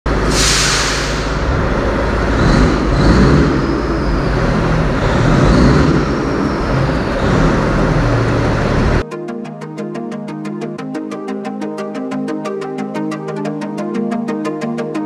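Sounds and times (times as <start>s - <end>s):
engine rumbling: 0.1s - 9.0s
short hiss: 0.3s - 1.4s.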